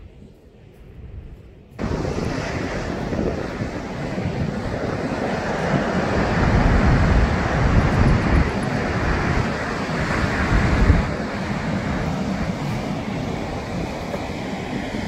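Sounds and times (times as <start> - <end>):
wind buffeting microphone: 0.0 - 15.0
surf breaking on rocks: 1.8 - 15.0.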